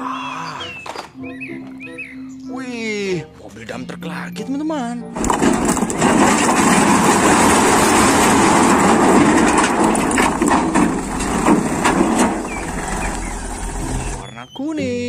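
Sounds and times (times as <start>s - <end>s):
rocks tumbling onto ground: 5.2s - 14.2s
truck engine running: 5.2s - 14.2s.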